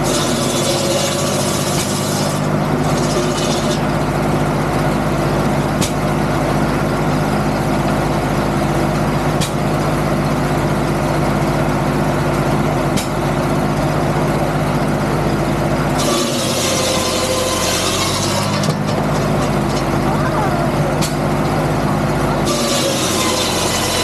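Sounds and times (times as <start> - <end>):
saw blade cutting wood: 0.0 - 3.9, 16.0 - 20.0, 22.4 - 24.0
circular saw running: 0.0 - 5.7, 14.4 - 24.0.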